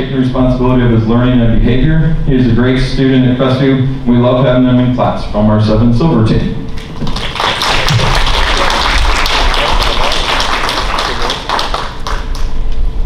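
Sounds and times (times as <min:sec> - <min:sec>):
audience applause: 0:06.8 - 0:12.6.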